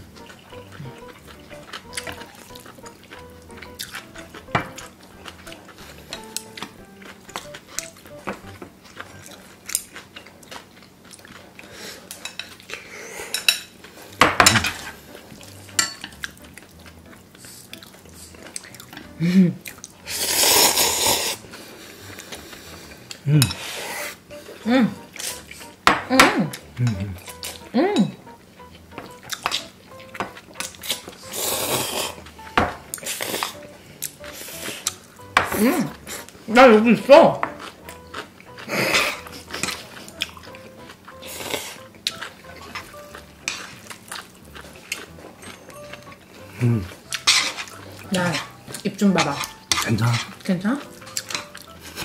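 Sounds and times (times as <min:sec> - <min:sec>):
eating sound: 0:00.0 - 0:52.0
utensils clicking on bowls: 0:06.1 - 0:08.0, 0:29.0 - 0:34.2, 0:47.0 - 0:52.0
people slurping noodles: 0:19.2 - 0:24.2, 0:30.8 - 0:32.3, 0:38.6 - 0:39.9, 0:41.1 - 0:41.9, 0:46.4 - 0:48.6
chopsticks clicking on glass bowls: 0:51.0 - 0:51.6.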